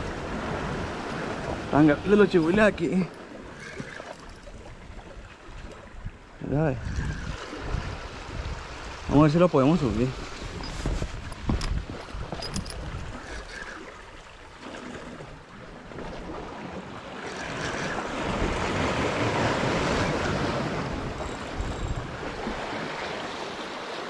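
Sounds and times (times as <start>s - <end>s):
wind buffeting the microphone: 4.4s - 14.0s, 17.5s - 23.4s
sea waves splashing against rocks: 10.0s - 24.0s.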